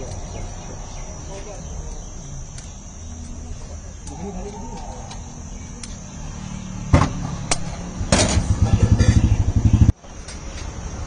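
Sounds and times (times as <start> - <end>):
engine running with low throb: 3.2 - 10.1
sharp knocks: 6.9 - 9.4.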